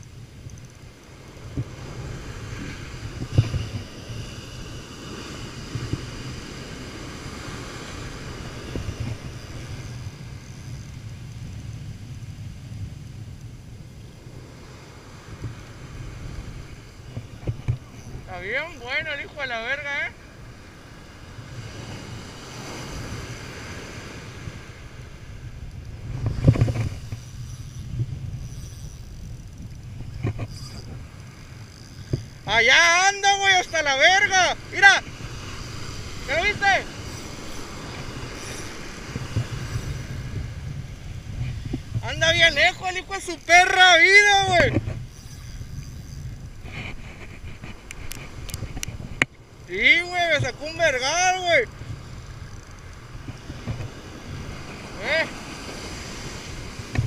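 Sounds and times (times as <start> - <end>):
wind buffeting microphone: 0.0 - 19.5, 20.1 - 57.0
breaking surf: 1.1 - 11.0, 14.2 - 27.2, 30.2 - 45.3, 45.9 - 57.0.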